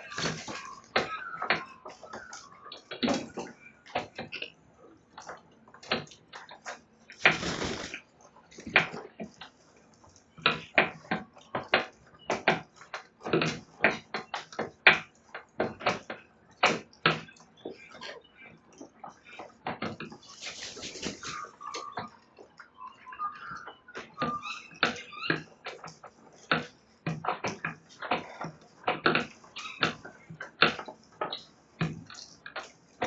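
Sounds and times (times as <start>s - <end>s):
beaks cracking wood: 0.0s - 22.6s.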